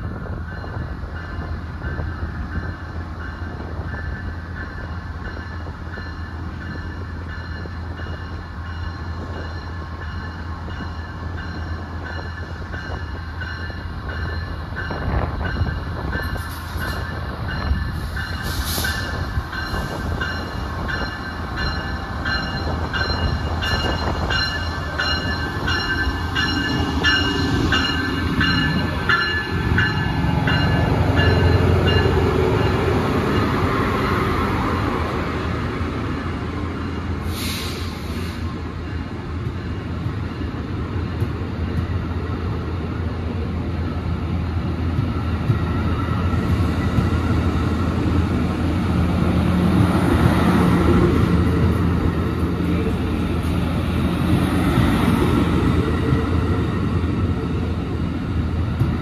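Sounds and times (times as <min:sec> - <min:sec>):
train low rumble: 0:00.0 - 0:59.0
brief hiss: 0:37.3 - 0:38.4.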